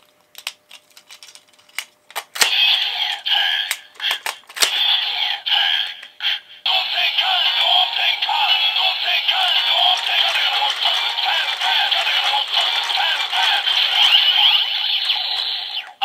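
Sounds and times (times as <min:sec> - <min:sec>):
toy electronic melody: 0:09.4 - 0:16.0.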